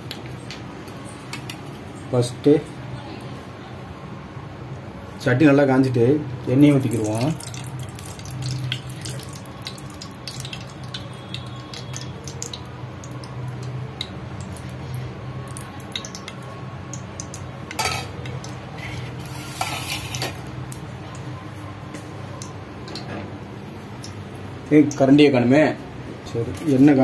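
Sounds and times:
oil pouring into a pot: 6.8 - 14.8
small ticks and crackles: 7.4 - 14.8.

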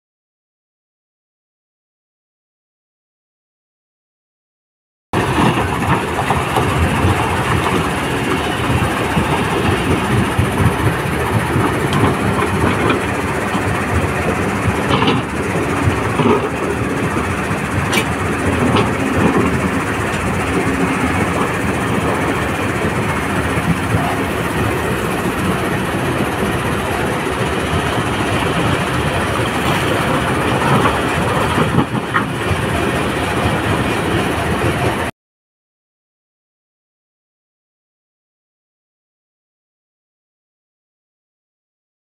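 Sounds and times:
excavator diesel engine: 5.2 - 35.1.

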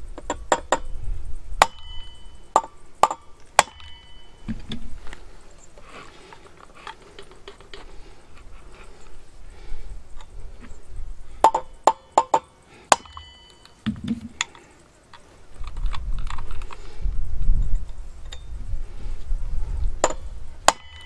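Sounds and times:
low rumbling handling noise: 0.0 - 12.6, 13.2 - 20.8
hammer striking steel punch: 1.6 - 4.2, 12.9 - 13.6, 20.0 - 21.0.

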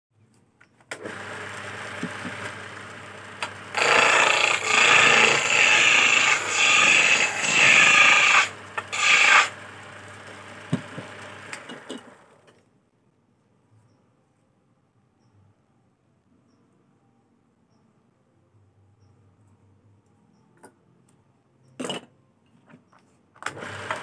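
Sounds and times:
cutting tool scraping wood: 1.0 - 12.1
wood lathe running: 1.0 - 12.5, 23.5 - 24.0.

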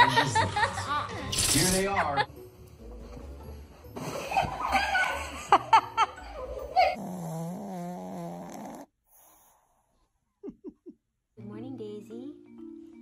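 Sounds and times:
dog snoring: 6.9 - 10.0.

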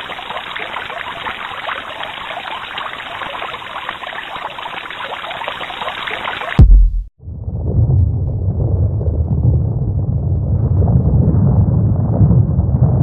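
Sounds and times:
loud deep boom: 6.6 - 13.0.

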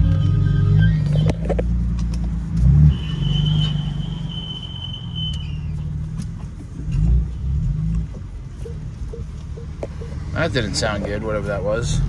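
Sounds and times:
high-pitched screeching under car: 2.7 - 5.9
car engine running: 5.8 - 12.0.

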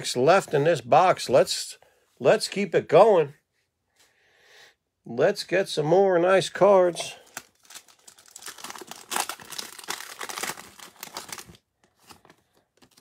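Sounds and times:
plastic wrapper crinkling: 7.0 - 13.0.

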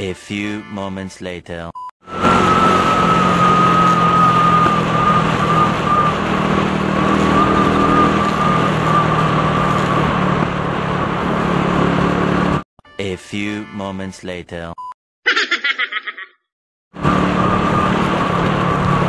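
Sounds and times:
high steady whistle: 2.0 - 6.2
motorcycle engine humming: 2.1 - 12.6, 17.0 - 19.0.

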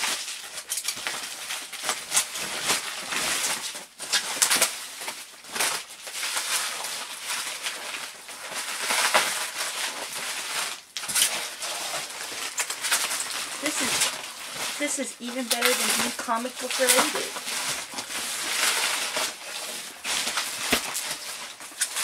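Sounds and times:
packaging rustling and scraping: 0.0 - 22.0.

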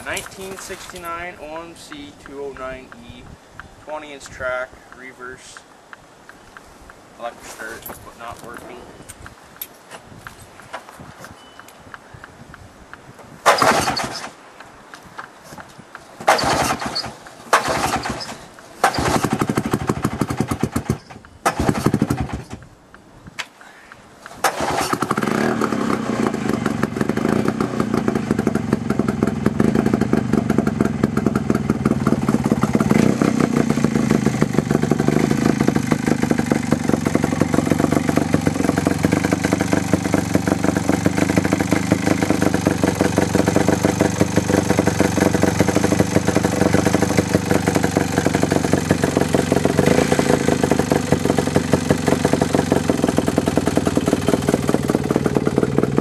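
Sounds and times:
snowmobile engine starting and idling: 0.0 - 2.9, 13.5 - 14.3, 16.2 - 22.6, 24.3 - 56.0.

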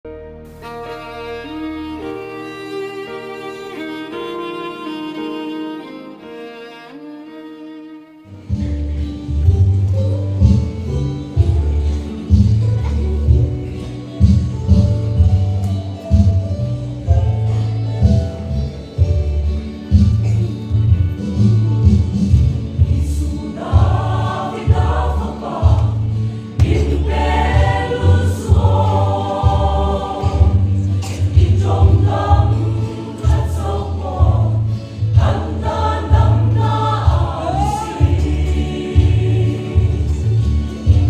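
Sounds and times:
band accompaniment: 0.2 - 6.8, 8.3 - 41.0
choir singing gospel: 22.2 - 41.0.

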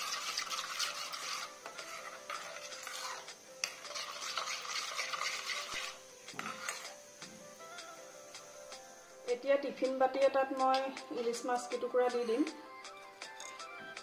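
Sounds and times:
metal spoon scraping steel bowl: 0.0 - 7.0, 13.3 - 13.6.

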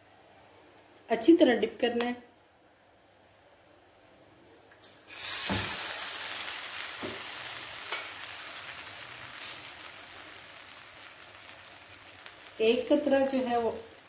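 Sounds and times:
bread sizzling in hot oil: 4.9 - 14.0.

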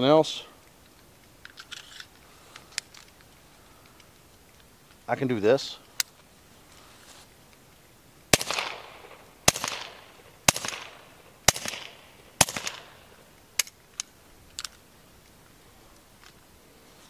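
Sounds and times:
suppressed pistol shots: 8.3 - 13.8.

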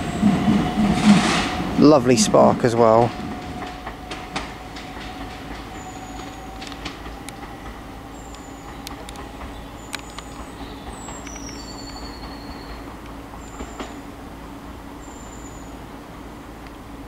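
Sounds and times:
electric train hum: 0.0 - 17.0
wheel squeals: 3.0 - 7.2, 8.1 - 14.0.

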